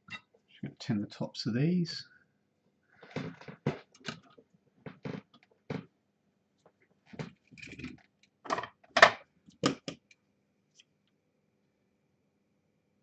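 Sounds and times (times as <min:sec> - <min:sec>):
tools knocking and clicking: 0:07.6 - 0:10.1.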